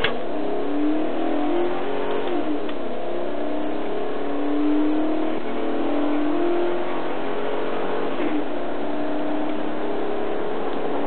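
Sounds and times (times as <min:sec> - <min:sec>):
car engine running hard: 0:00.0 - 0:11.0.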